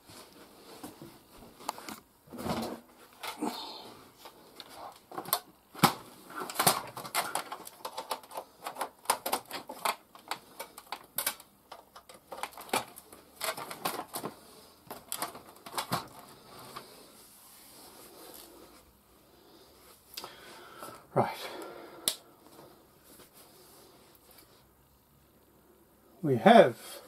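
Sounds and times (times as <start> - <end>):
plastic clicks and clatter: 4.2 - 16.9.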